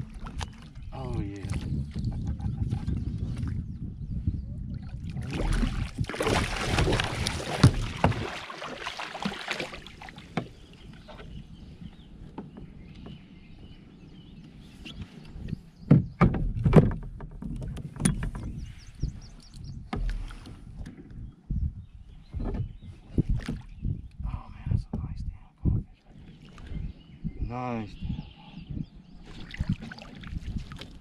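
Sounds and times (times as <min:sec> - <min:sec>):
fish thrashing and splashing: 0:05.2 - 0:10.3
knocks against a kayak: 0:05.5 - 0:08.4, 0:15.8 - 0:18.6, 0:22.3 - 0:23.7.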